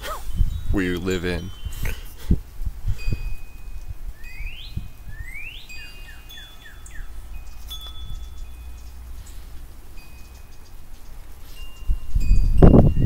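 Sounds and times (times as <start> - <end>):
low wind rumble: 0.0 - 13.0
wind chimes ringing: 0.2 - 13.0
songbird whistling: 4.1 - 9.5.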